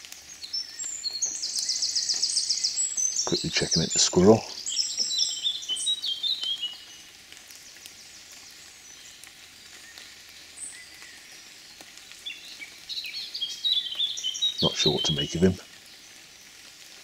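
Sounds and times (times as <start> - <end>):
light rain hiss: 0.0 - 17.0
songbird chirping: 0.3 - 7.1, 9.8 - 16.2.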